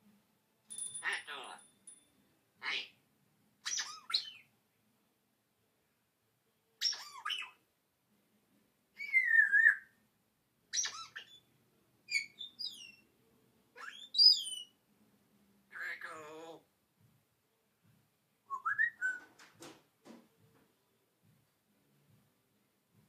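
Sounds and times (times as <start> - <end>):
parrot calls and whistles: 3.6 - 4.5, 6.8 - 7.6, 9.0 - 10.0, 10.7 - 11.5, 12.1 - 13.0, 13.8 - 14.8, 18.5 - 19.4.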